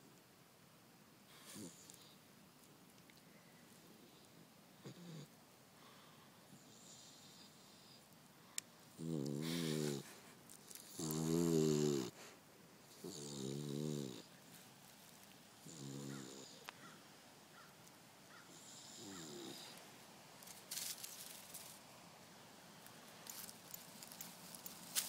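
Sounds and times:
dog snoring: 4.8 - 5.3, 9.0 - 10.1, 10.8 - 12.2, 12.9 - 14.3, 15.6 - 16.6, 18.5 - 19.7
brief rustle: 20.4 - 21.8.

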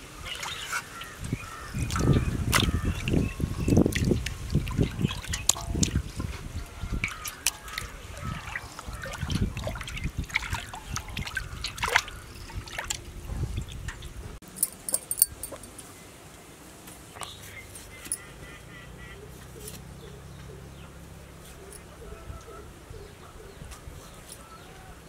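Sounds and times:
water trickling and dripping: 0.2 - 15.9
small wet knocks and splashes: 0.3 - 14.1.

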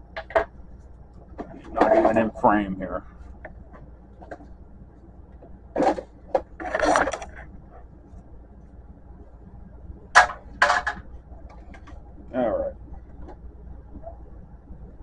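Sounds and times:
plastic scraping rustles: 5.8 - 7.5.

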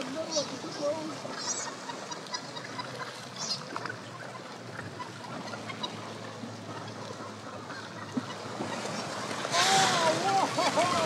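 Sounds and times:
seabirds calling harshly: 0.0 - 11.0
water and wind: 0.0 - 11.0.

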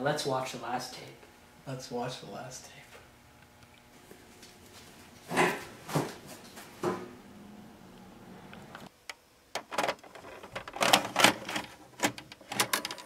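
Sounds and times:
mechanical clicks and clunks: 9.5 - 13.0
video recorder loading cassette: 9.6 - 13.0.

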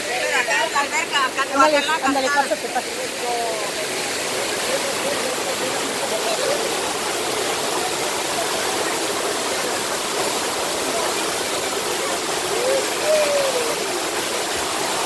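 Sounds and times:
faint voices: 0.0 - 15.0
waterfall splashing into pool: 0.0 - 15.0.

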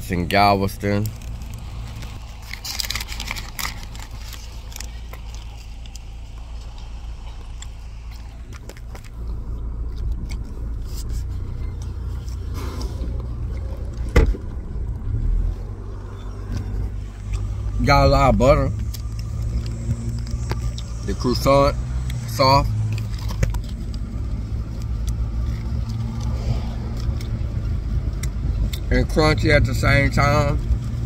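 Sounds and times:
car engine humming: 0.0 - 31.0
crunchy chewing of croissant: 1.0 - 14.0, 18.8 - 28.8.

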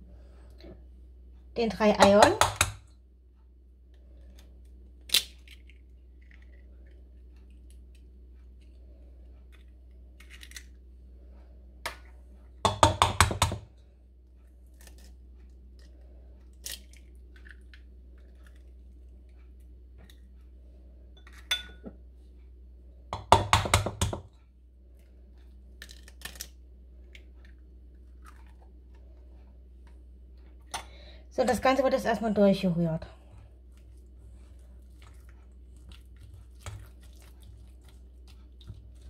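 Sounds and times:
eggs tapping on steel bowl: 1.8 - 2.8, 12.6 - 13.7, 23.2 - 24.3.

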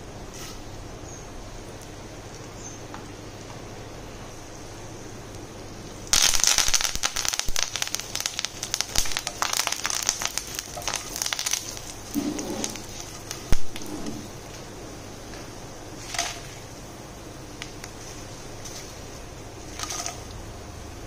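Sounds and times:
leaves sputtering in hot oil: 0.2 - 21.0
wooden spatula stirring: 9.3 - 14.6, 17.7 - 20.4.

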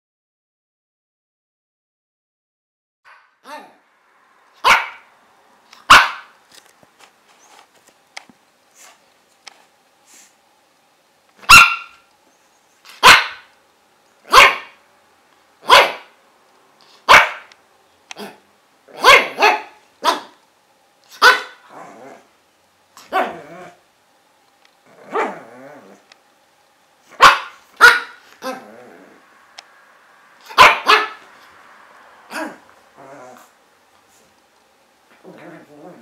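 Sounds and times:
puppy barking: 3.1 - 3.8, 4.6 - 5.1, 5.8 - 6.3, 11.4 - 12.1, 12.9 - 13.5, 14.3 - 14.8, 15.6 - 16.2, 17.0 - 17.5, 18.2 - 20.4, 21.1 - 21.8, 23.0 - 23.8, 25.0 - 25.6, 27.1 - 28.7, 30.4 - 31.3, 32.3 - 32.7.

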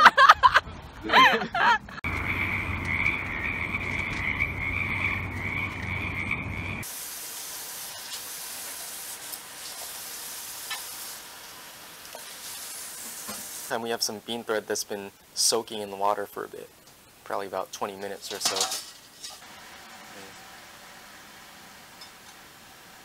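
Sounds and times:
low rumble: 1.9 - 6.8
high-pitched calling chorus: 2.1 - 6.8
faint even hiss: 6.9 - 19.4.

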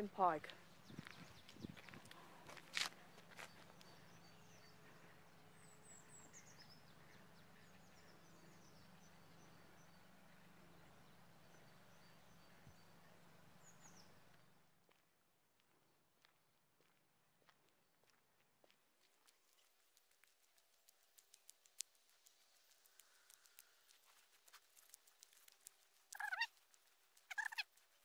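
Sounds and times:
high bird chirps: 26.2 - 26.5, 27.3 - 27.7.

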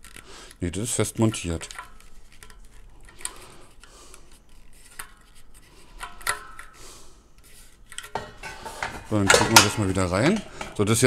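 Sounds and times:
quiet rubbing: 0.0 - 11.0
air fryer parts clicking and knocking: 8.1 - 11.0.

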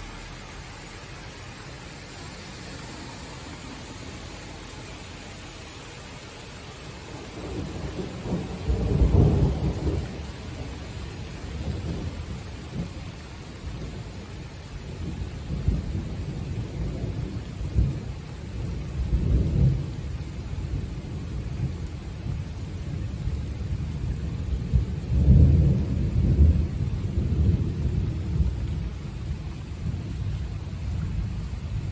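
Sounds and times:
steady rain: 0.0 - 31.9
thunder rumbling: 6.4 - 31.9.

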